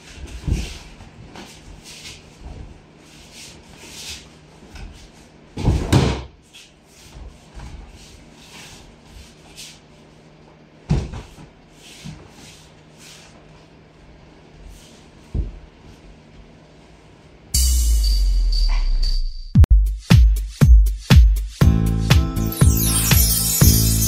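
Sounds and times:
bare feet shuffling on mats: 0.0s - 17.0s
rustling of training uniforms: 0.0s - 17.4s.

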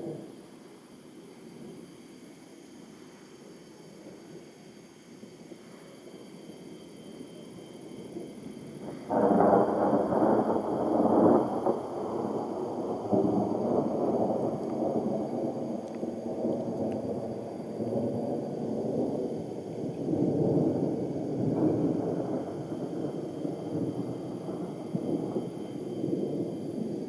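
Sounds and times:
thunder rumbling: 8.0s - 27.0s.

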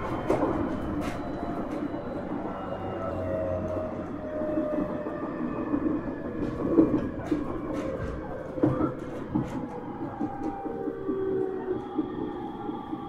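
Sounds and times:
train wheels rumbling on rail: 0.0s - 13.0s
clicks and knocks from rail joints: 6.4s - 11.3s.

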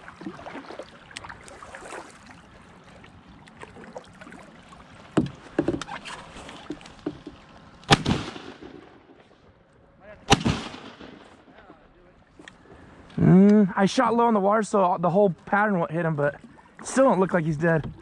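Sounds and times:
kayak gear knocking on hull: 5.1s - 6.0s, 6.6s - 7.4s
shotgun shot: 7.9s - 9.0s, 10.3s - 11.4s.

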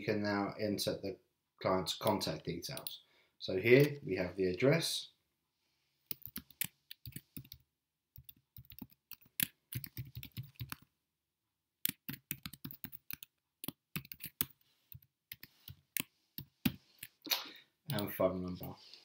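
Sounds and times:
typing on computer keyboard: 6.1s - 7.6s, 8.2s - 10.8s, 11.8s - 16.8s.

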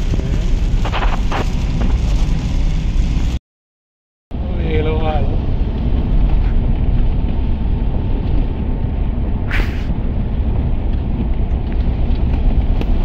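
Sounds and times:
car cabin road rumble: 0.0s - 3.4s, 4.3s - 13.0s
brief hiss: 9.5s - 9.9s.

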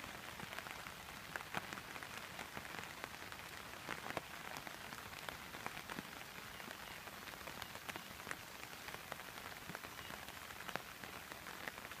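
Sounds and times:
raindrops ticking close by: 0.0s - 12.0s
steady rain hiss: 0.0s - 12.0s.

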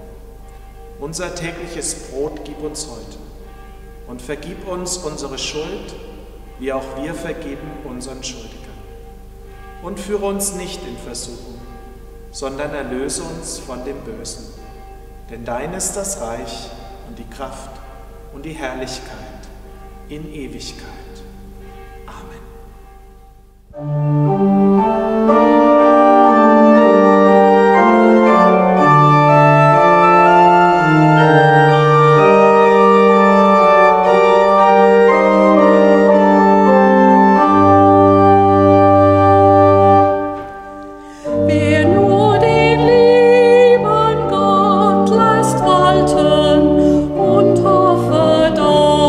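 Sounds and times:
pipe organ chords: 0.0s - 49.0s
woman singing with vibrato: 41.1s - 49.0s.

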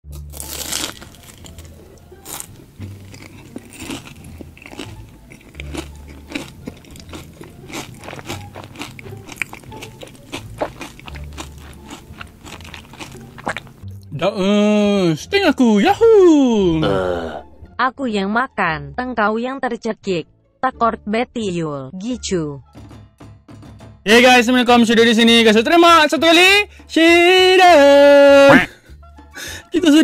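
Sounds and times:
background music with bass line: 0.0s - 30.0s
crunching and chewing food: 0.1s - 13.8s.

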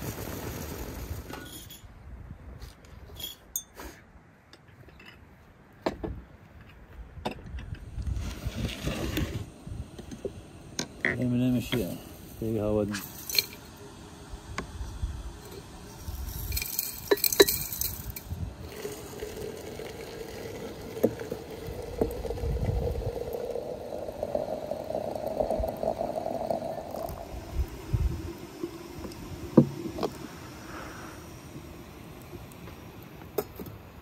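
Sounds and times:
glass and metal clinks: 3.2s - 3.8s
water pouring into a teapot: 15.4s - 32.7s.

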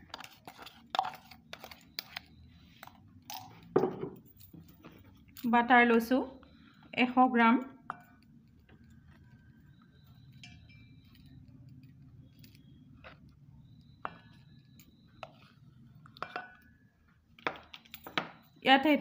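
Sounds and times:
low steady hum: 0.0s - 19.0s
metal spoon tapping steel bowl: 16.2s - 16.7s.

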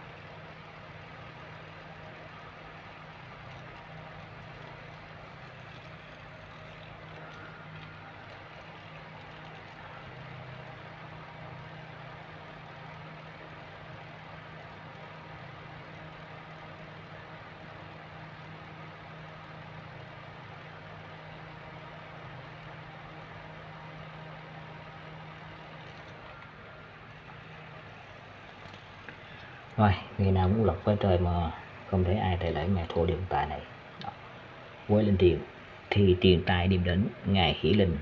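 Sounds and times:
motor humming: 0.0s - 18.8s.

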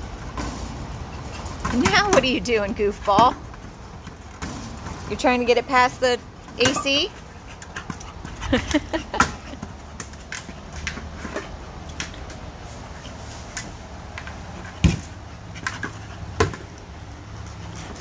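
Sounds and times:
heavy ball thumps: 14.8s - 15.2s.

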